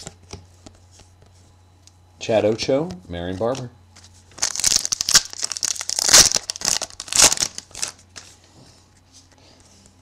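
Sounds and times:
plastic wrapper crinkling and tearing: 0:04.3 - 0:08.0.

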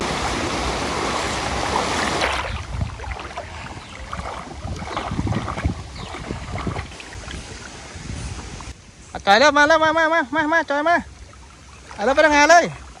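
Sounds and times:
floodwater rushing: 0:00.0 - 0:08.8, 0:09.7 - 0:13.0
water sloshing and splashing: 0:00.0 - 0:08.8, 0:11.0 - 0:13.0.

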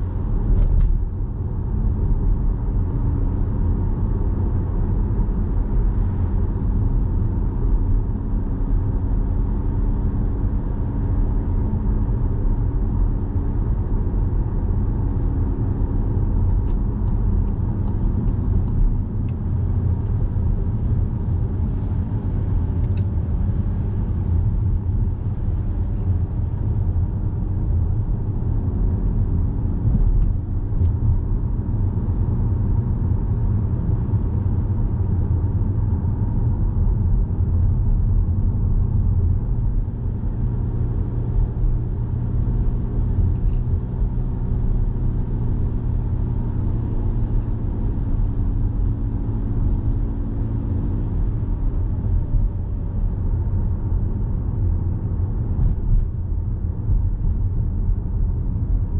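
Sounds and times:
car engine rumble: 0:00.0 - 0:58.9.

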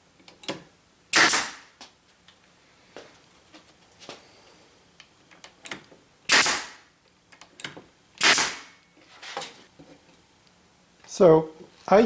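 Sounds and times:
nail gun firing with air hiss: 0:01.1 - 0:01.8, 0:06.3 - 0:06.9, 0:08.2 - 0:08.8.

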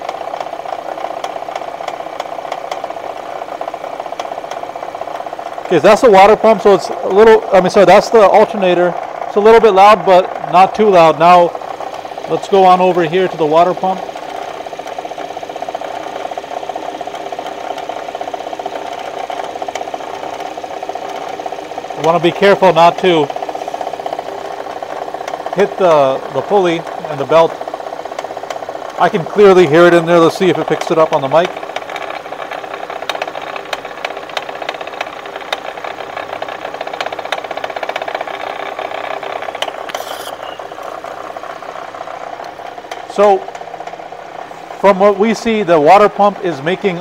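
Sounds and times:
car engine idling with knocking rattle: 0:00.0 - 0:47.0.

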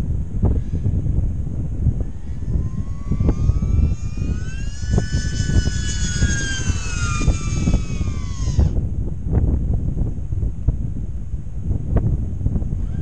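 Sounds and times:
wind buffeting microphone: 0:00.0 - 0:13.0
electric motors and propellers whining: 0:00.4 - 0:09.4.

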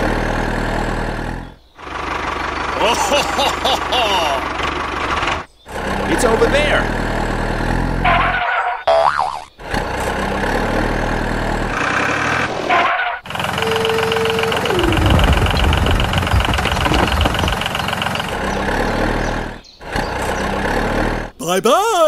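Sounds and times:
truck engine sound effect: 0:00.0 - 0:22.0
dense rumble with fast ticking: 0:13.3 - 0:19.6
tone sliding downward: 0:13.4 - 0:17.4.

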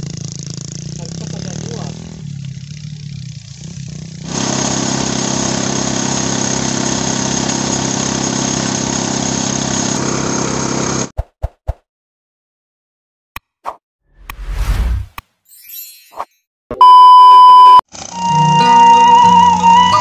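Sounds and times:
threshing machine engine running: 0:03.4 - 0:11.1.

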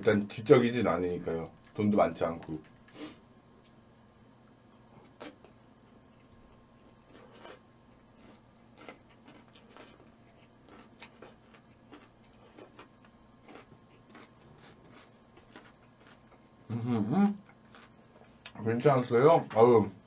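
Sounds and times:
person chewing: 0:04.7 - 0:16.7, 0:17.4 - 0:18.6.

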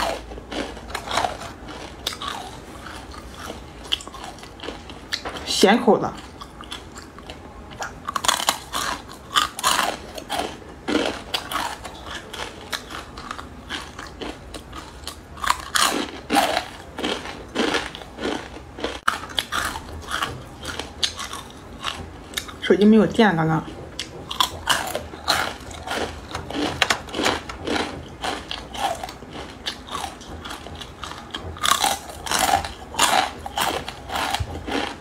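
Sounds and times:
crunching of crisp noodles: 0:00.0 - 0:05.5, 0:06.2 - 0:22.6, 0:24.0 - 0:35.0
soft chewing: 0:06.1 - 0:22.6, 0:23.6 - 0:35.0.

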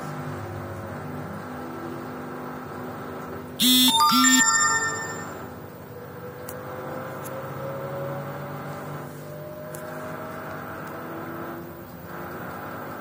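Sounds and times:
two-note chime: 0:03.9 - 0:05.6.

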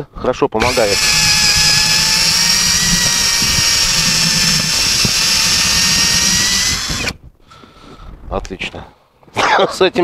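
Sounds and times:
cordless drill motor whine: 0:00.6 - 0:07.2
hole saw cutting wood: 0:00.6 - 0:07.2.

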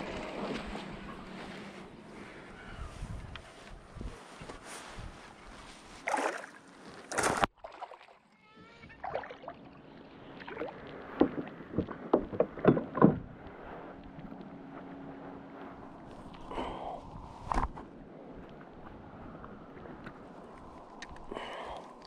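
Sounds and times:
water splashing: 0:06.0 - 0:13.1
knocks and rattles: 0:11.2 - 0:13.4.

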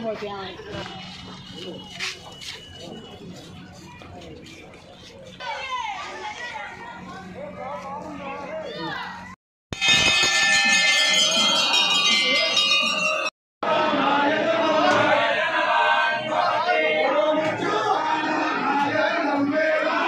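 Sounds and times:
crowd of voices calling out: 0:08.3 - 0:20.0
temple bells ringing: 0:09.8 - 0:13.3.

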